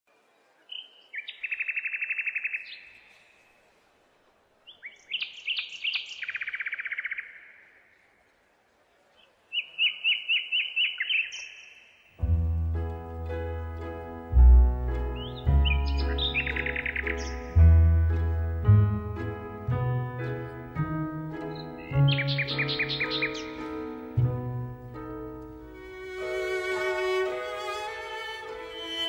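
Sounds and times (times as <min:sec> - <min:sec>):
songbird singing trills: 0:04.7 - 0:07.7, 0:15.1 - 0:18.0, 0:20.2 - 0:25.2
music: 0:12.2 - 0:29.0.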